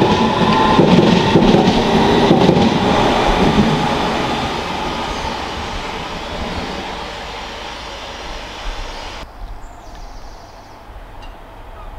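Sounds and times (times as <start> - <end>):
train wheels rumbling on rails: 0.0 - 9.3.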